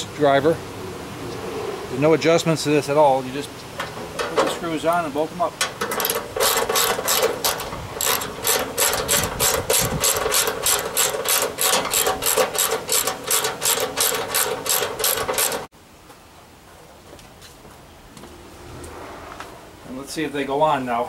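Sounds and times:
hand ratchet clicking rapidly: 5.9s - 15.7s.

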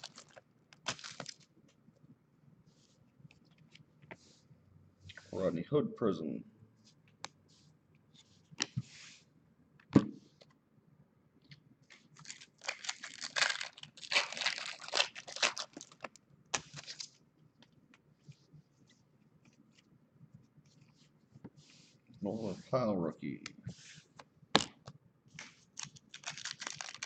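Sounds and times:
foil wrapper tearing and crinkling: 0.0s - 1.5s, 12.2s - 17.2s, 25.7s - 27.0s.

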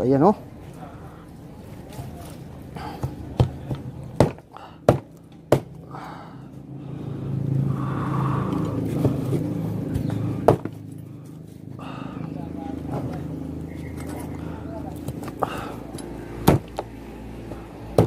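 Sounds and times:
low steady rumble: 5.1s - 18.0s.

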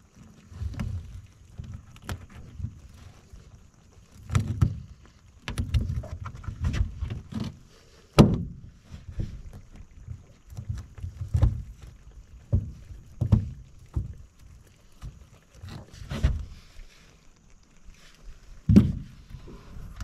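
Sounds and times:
knocks and bumps: 18.7s - 19.2s.

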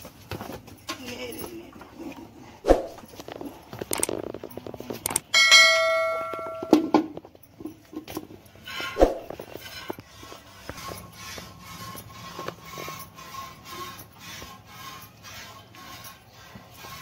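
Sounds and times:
bright metallic ring: 5.3s - 7.2s.

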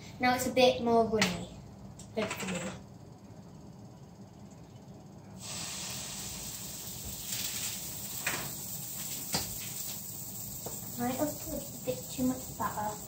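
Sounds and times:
batter sizzling in a frying pan: 5.4s - 13.0s.

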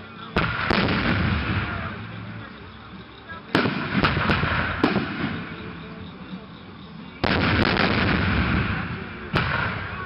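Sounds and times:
rolling rumble of fireworks: 0.0s - 10.0s
firework crack: 0.1s - 2.6s, 3.4s - 6.2s, 7.1s - 10.0s
firework bangs: 0.3s - 2.2s, 3.5s - 5.8s, 7.2s - 10.0s.

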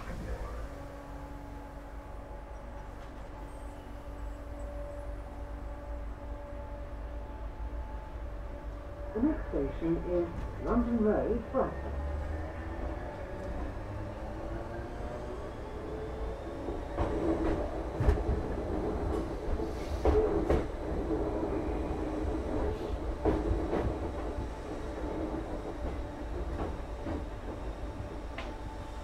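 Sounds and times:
train motor coach rumble: 0.0s - 29.0s.

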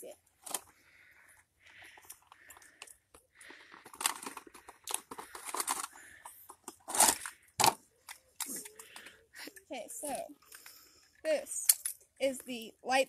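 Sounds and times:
packaging crinkling and tearing: 3.4s - 9.0s.

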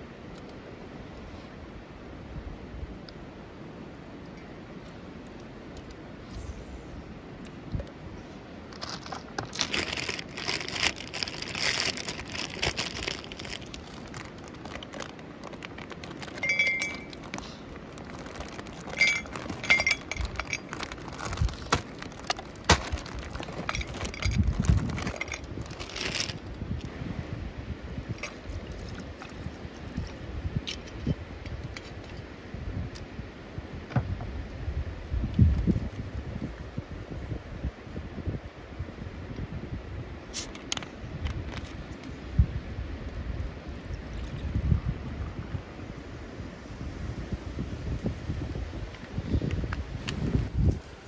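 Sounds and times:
plastic bag crinkling: 8.7s - 26.6s
liquid pouring over ice: 9.7s - 26.3s
ice cubes clinking in glass: 16.1s - 17.3s, 18.2s - 26.3s.

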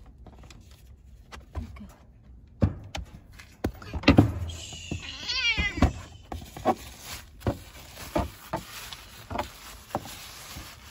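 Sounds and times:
knocks and rustles in litter box: 2.6s - 10.9s
cat meowing: 4.9s - 6.2s.

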